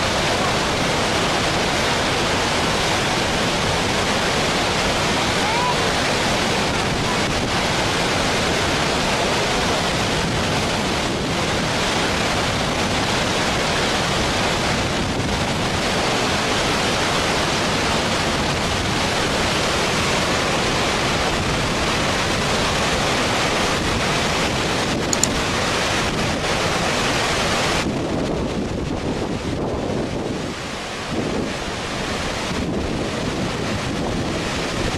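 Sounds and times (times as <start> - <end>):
floodwater rushing over weir: 0.0 - 34.9
brief click: 25.1 - 25.4.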